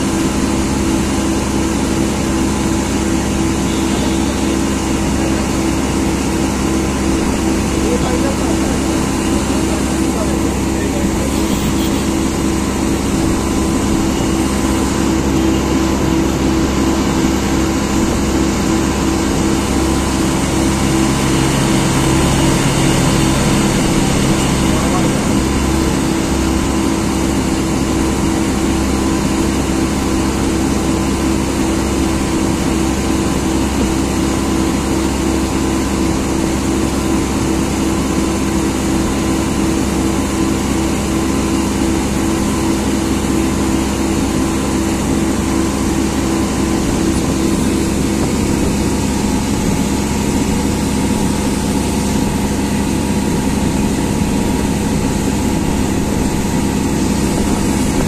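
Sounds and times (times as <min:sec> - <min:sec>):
boat engine drone: 0:00.0 - 0:58.0
wind: 0:00.0 - 0:58.0
water hissing: 0:11.0 - 0:14.8.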